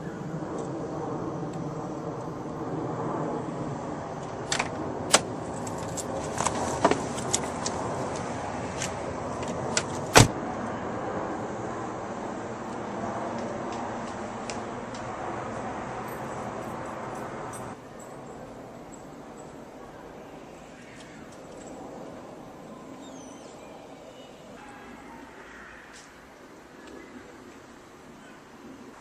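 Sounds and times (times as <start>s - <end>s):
street noise hum: 0.0s - 29.0s
car door shutting: 9.8s - 10.4s.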